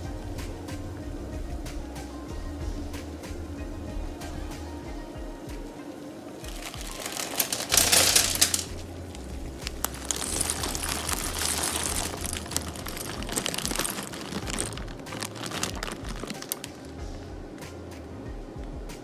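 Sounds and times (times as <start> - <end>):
dry pasta pouring into water: 6.4 - 16.8
plastic bag crinkling: 6.4 - 17.0.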